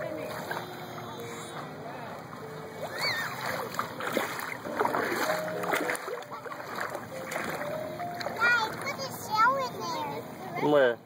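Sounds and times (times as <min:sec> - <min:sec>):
faint voices: 0:00.0 - 0:04.1
shallow water splashing: 0:00.0 - 0:09.4.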